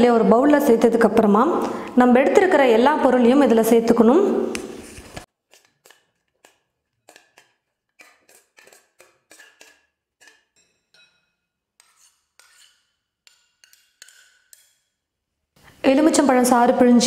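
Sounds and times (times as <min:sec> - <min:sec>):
vegetables scraped into bowl: 0:04.6 - 0:10.6, 0:11.8 - 0:14.8
spoon clinking on glass bowl: 0:10.5 - 0:11.6.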